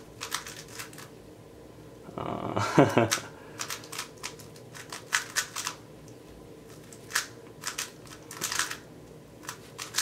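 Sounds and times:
speed cube plastic clicks: 0:03.6 - 0:05.8, 0:07.1 - 0:08.8, 0:09.4 - 0:10.0.

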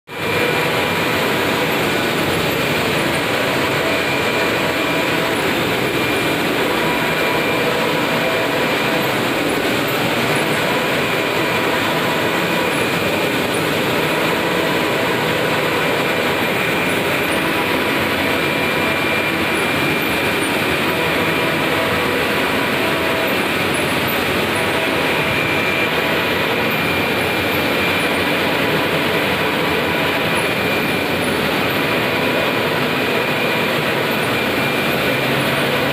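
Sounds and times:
faint high whine: 0:00.1 - 0:35.9
printer mechanical whir: 0:00.1 - 0:35.9.

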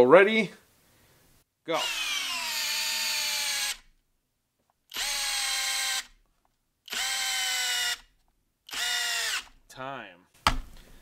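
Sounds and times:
drill motor whine: 0:01.8 - 0:03.8, 0:04.9 - 0:06.1.

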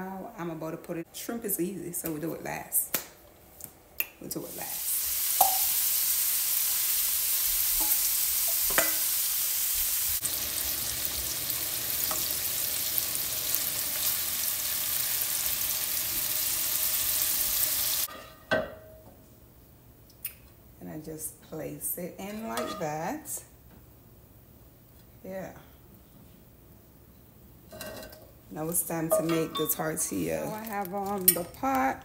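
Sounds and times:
shrimp sizzling in frying pan: 0:04.4 - 0:18.1
utensil clinking against pan: 0:29.1 - 0:30.3.

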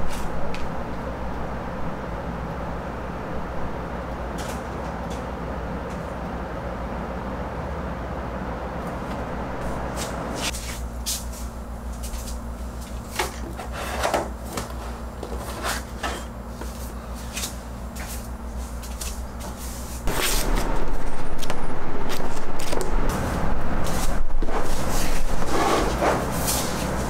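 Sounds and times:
low hum: 0:20.0 - 0:25.5.

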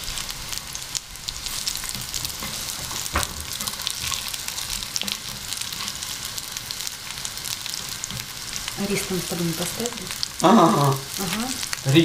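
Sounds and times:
food sizzling in oil: 0:00.0 - 0:12.0
spatula scraping and knocking pan: 0:01.8 - 0:06.3.

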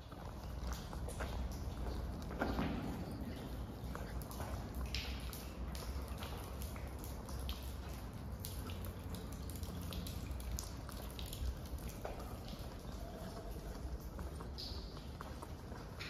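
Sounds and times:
footsteps on wet floor: 0:00.0 - 0:16.0
water dripping: 0:00.0 - 0:16.0.

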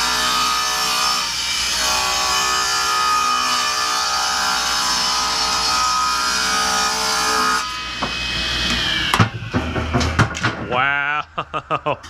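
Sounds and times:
table saw cutting board: 0:00.0 - 0:10.7.

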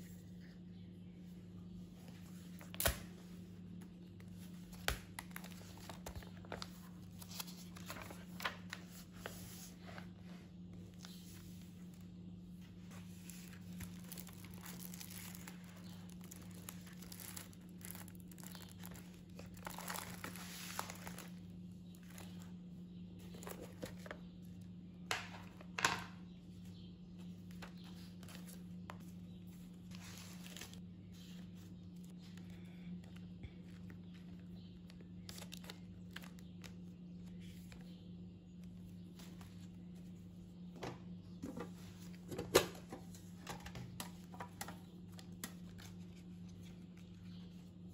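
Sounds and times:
steady low hum: 0:00.0 - 0:47.9
paper rustling and crinkling: 0:02.0 - 0:22.5, 0:27.3 - 0:37.9.

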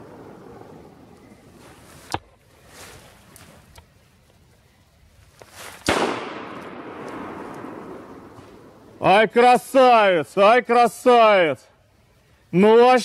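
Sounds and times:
shotgun shots: 0:05.8 - 0:08.9.

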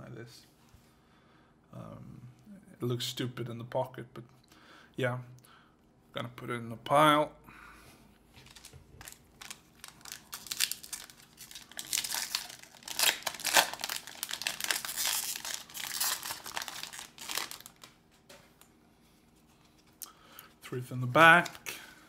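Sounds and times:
foil wrapper tearing and crinkling: 0:08.4 - 0:18.0.

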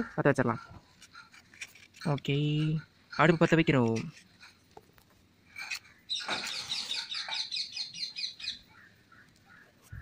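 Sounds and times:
bird chirping: 0:05.5 - 0:10.0.

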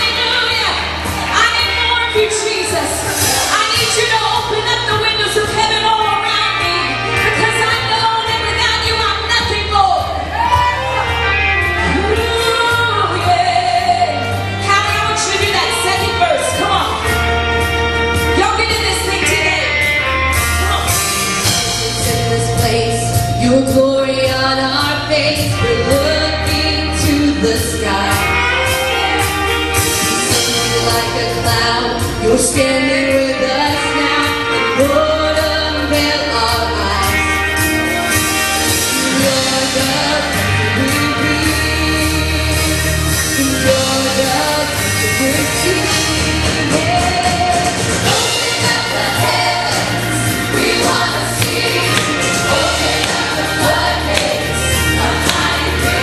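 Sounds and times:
bass: 0:00.0 - 0:56.0
steady drum beat: 0:44.9 - 0:56.0
choir singing: 0:45.9 - 0:56.0.

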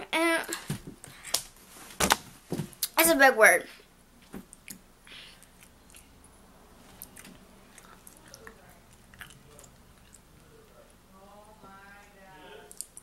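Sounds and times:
person chewing: 0:04.5 - 0:10.4.

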